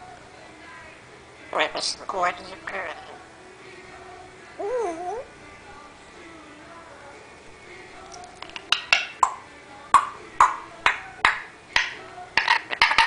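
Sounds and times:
parrot making clicking pops: 0:08.2 - 0:09.4, 0:10.0 - 0:13.0.

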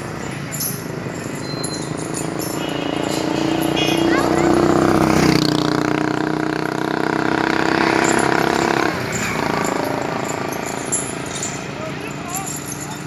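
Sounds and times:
motorcycle riding past: 0:01.8 - 0:11.4.

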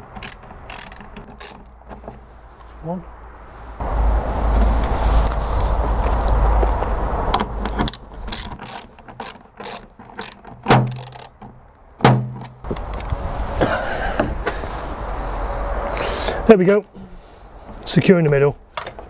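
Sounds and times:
screwdriver clicking: 0:00.1 - 0:01.7, 0:07.7 - 0:11.4
low rumbling noise: 0:01.7 - 0:08.4, 0:12.6 - 0:16.5.

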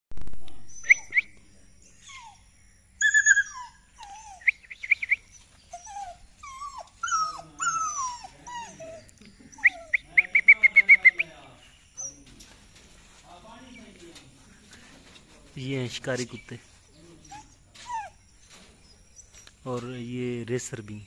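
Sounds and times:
puppies whining and whimpering: 0:00.6 - 0:01.2, 0:01.8 - 0:10.2, 0:11.9 - 0:12.4, 0:17.2 - 0:20.0
puppies yipping: 0:02.0 - 0:11.2, 0:11.9 - 0:12.7, 0:16.1 - 0:20.0.

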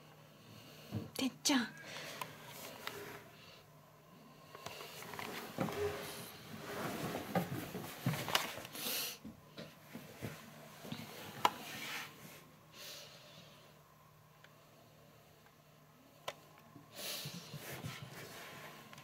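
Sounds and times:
rustling and handling noise: 0:02.0 - 0:03.4, 0:04.5 - 0:08.8, 0:16.2 - 0:19.0.

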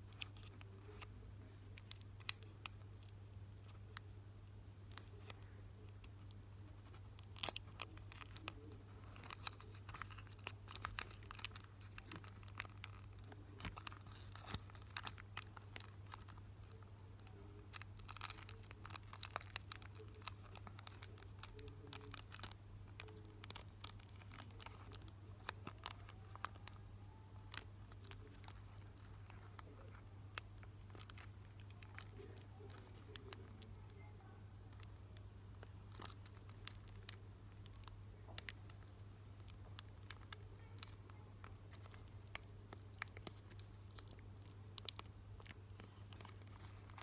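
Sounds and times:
foil wrapper crinkling and tearing: 0:06.0 - 0:34.0, 0:35.5 - 0:47.0.

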